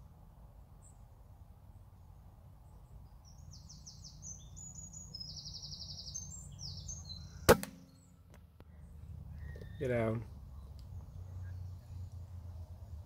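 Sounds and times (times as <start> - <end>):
songbird singing trills: 2.6 - 13.0.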